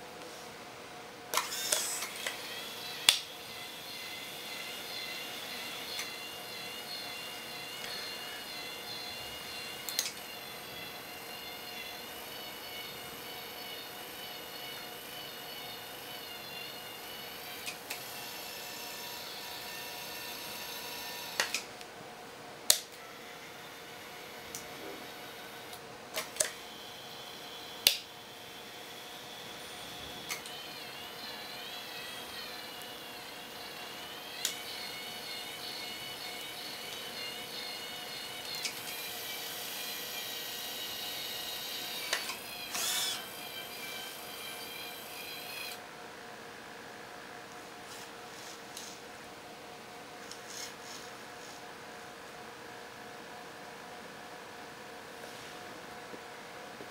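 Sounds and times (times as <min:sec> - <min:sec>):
small electric motors whining: 0:01.3 - 0:21.7, 0:22.8 - 0:45.8.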